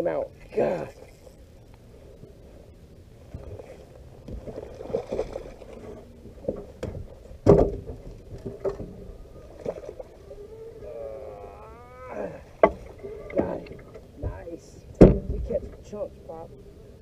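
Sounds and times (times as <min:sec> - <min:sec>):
knocks and thumps on boat: 0:04.2 - 0:10.1, 0:12.4 - 0:15.9.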